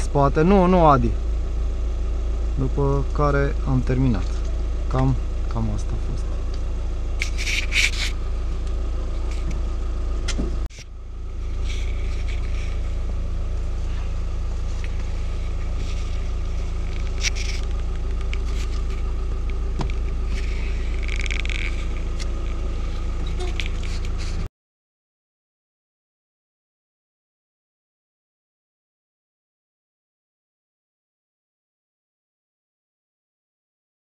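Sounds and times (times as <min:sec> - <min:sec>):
car engine idling: 0:00.0 - 0:24.5.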